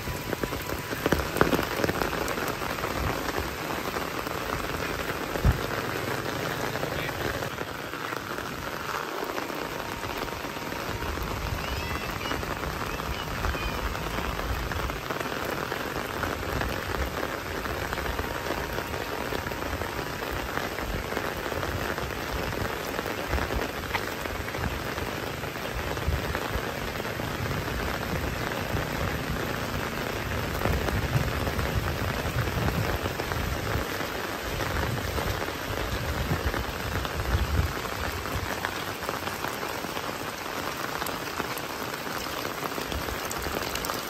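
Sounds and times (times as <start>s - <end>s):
heavy rain: 0.0s - 44.0s.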